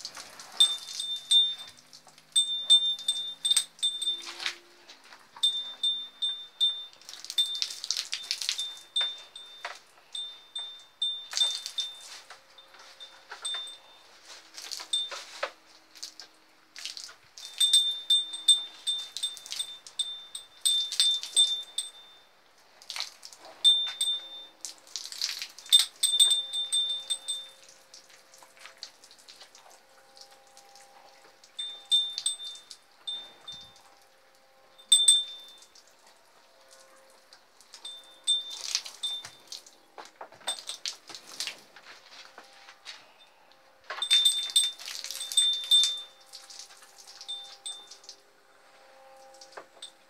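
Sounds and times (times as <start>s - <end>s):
hose water spraying and splattering: 0.0s - 9.6s, 14.4s - 21.9s, 22.8s - 33.2s, 36.6s - 41.8s, 44.0s - 48.2s
high repeated chime-like note: 0.5s - 4.8s, 5.4s - 14.4s, 23.4s - 24.6s, 25.7s - 27.9s, 31.0s - 35.7s, 37.8s - 39.6s, 42.8s - 50.0s.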